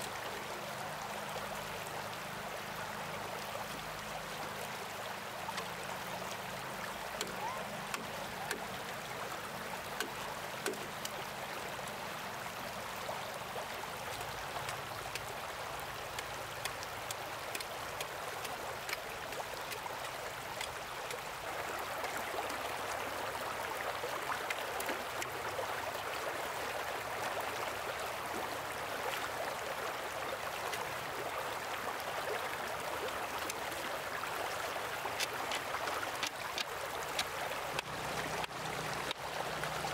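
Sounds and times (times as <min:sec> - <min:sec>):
stream water running and splashing: 0:00.0 - 0:39.9
small clicks and knocks: 0:10.0 - 0:11.2, 0:35.2 - 0:39.2.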